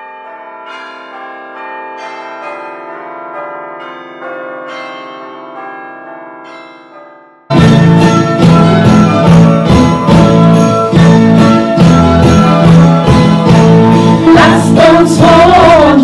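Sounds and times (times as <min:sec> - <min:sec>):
bells ringing: 0:00.0 - 0:16.0.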